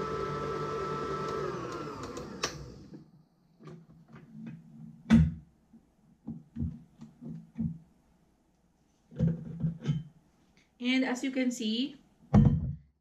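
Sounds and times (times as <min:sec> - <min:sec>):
stand mixer motor winding down: 0:00.0 - 0:02.9.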